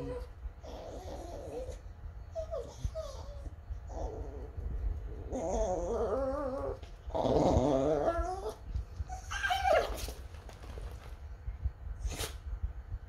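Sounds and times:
dog whining howls: 5.2s - 10.2s.

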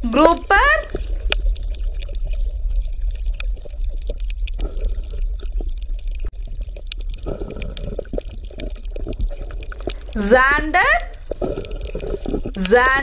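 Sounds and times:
bubbling gurgling water: 0.0s - 13.0s
underwater low rumble: 0.0s - 13.0s.

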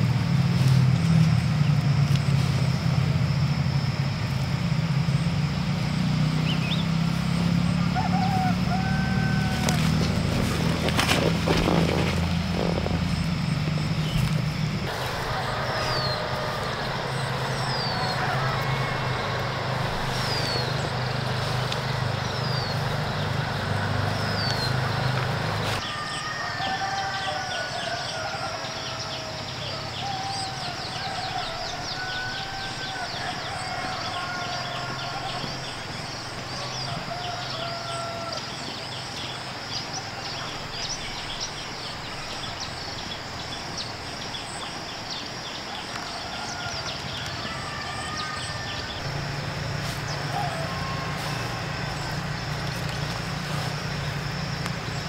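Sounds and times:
steady low hum: 0.0s - 25.8s
birds chirping: 0.0s - 55.0s.

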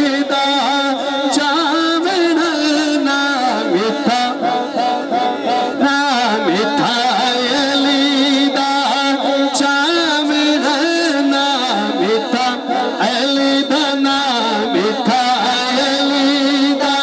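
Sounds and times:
man singing into microphone: 0.0s - 17.0s.

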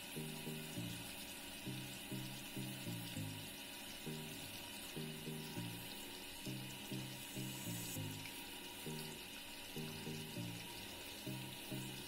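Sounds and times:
background music low notes: 0.0s - 12.0s
fish deep-frying sizzle: 0.0s - 12.0s.

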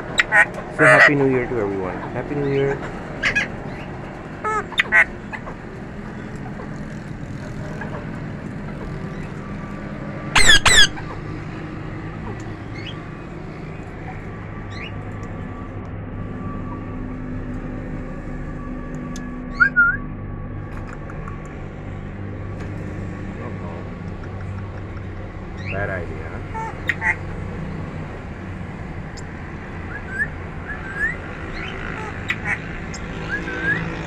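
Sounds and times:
parakeet squawking: 0.0s - 1.2s, 1.9s - 6.6s, 10.4s - 11.4s, 12.7s - 13.1s, 26.4s - 27.2s, 29.9s - 34.0s
steady low hum: 0.0s - 34.0s
small birds chirping: 10.4s - 11.6s, 12.3s - 15.0s, 24.1s - 27.2s, 29.1s - 34.0s.

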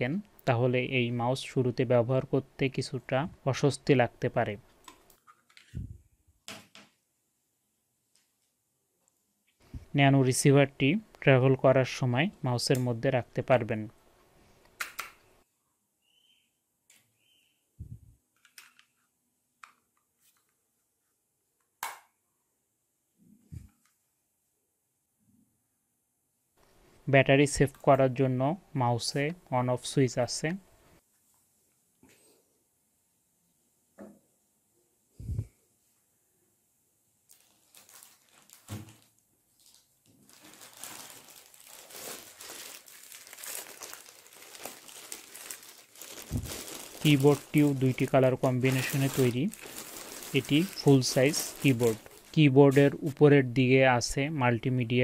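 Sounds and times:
plastic wrapping crinkling: 37.2s - 53.2s.

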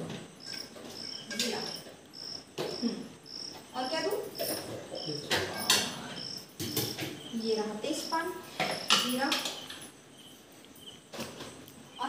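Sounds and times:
cricket chirping: 0.0s - 12.0s
steel pots knocking: 8.2s - 9.9s.

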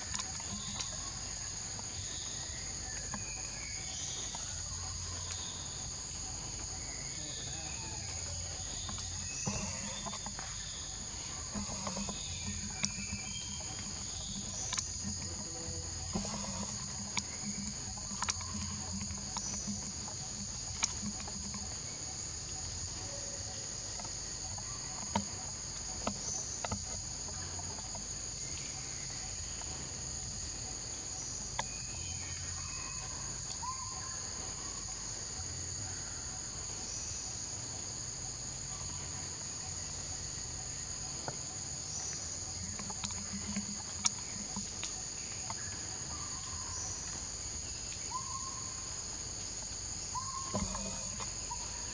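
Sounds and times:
faint chirps: 0.0s - 51.9s
high-pitched insect chorus: 0.0s - 51.9s.

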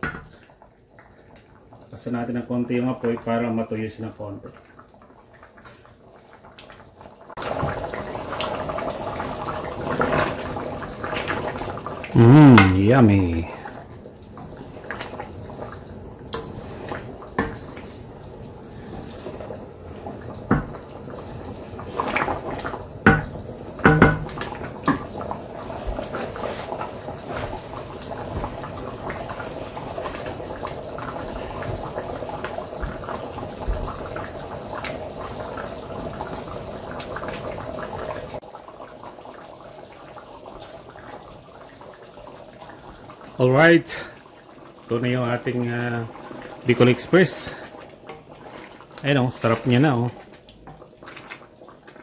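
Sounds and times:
sauce bubbling in skillet: 0.0s - 52.0s
wooden spoon knocking pan: 23.1s - 25.0s.

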